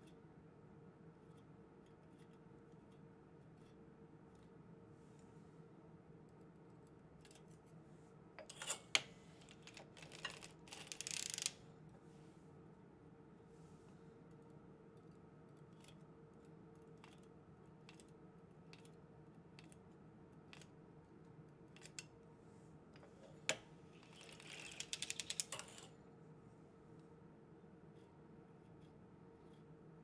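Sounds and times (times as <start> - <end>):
faint steady hum: 0.0 - 30.0
knitting machine needles clicking: 9.5 - 11.6, 24.0 - 25.9.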